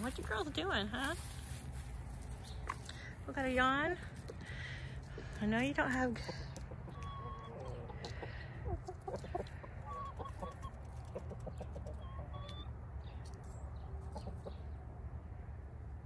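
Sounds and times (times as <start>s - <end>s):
hens clucking softly: 6.1s - 12.7s, 13.9s - 14.8s.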